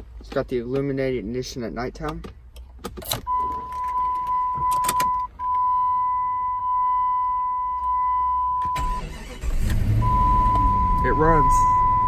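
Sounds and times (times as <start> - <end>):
key clicking in ignition: 2.0 - 5.3
high warning beep: 3.3 - 9.0, 10.0 - 12.0.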